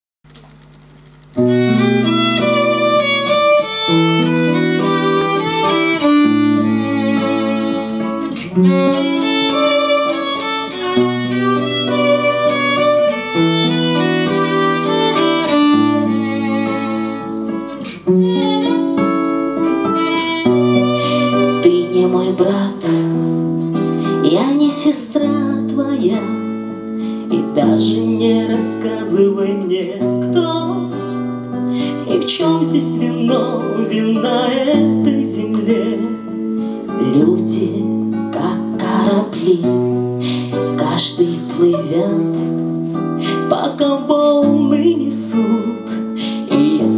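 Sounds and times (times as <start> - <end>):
acoustic guitar accompaniment: 0.3 - 46.9
violin playing slow melody: 1.4 - 24.1.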